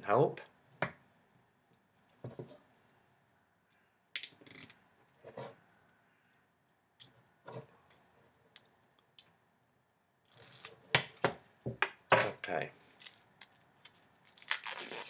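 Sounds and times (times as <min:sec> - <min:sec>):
cellophane crinkling and tearing: 0:12.9 - 0:15.0.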